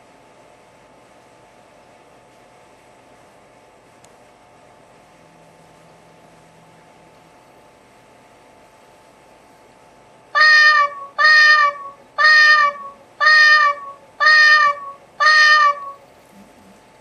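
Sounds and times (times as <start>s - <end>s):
recorded cat meow alarm: 10.4s - 16.0s.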